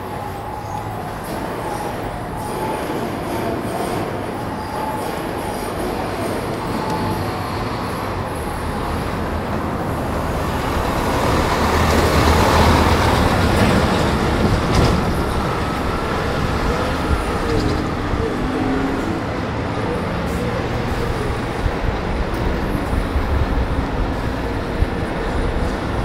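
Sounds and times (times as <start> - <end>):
bus passing: 0.0 - 26.0
town traffic: 0.0 - 26.0.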